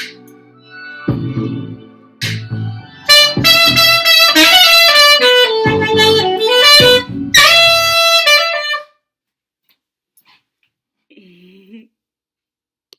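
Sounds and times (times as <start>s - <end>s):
saxophone slow melody: 2.9s - 8.9s.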